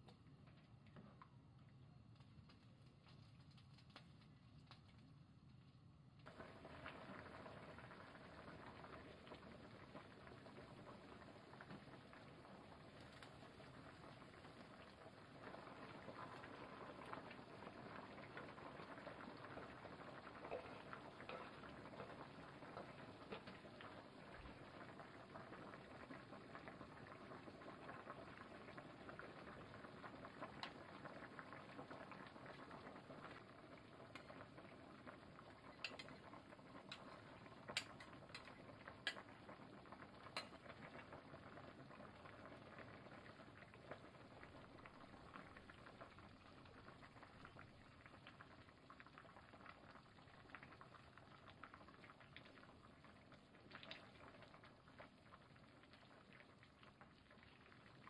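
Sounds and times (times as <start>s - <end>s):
soup bubbling in a pot: 0.0s - 58.0s
metal ladle clicking against pot: 35.8s - 36.1s.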